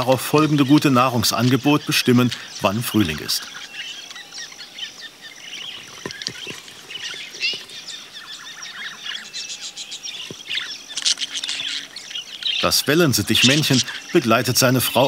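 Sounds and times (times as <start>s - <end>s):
budgerigars chattering: 0.0s - 15.0s.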